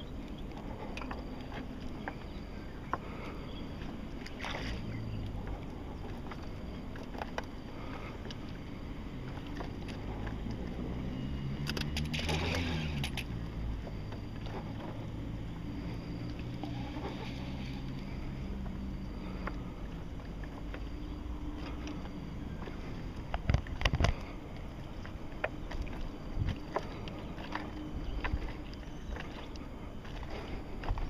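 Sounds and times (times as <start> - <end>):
fishing reel handling noise: 11.6 - 13.4.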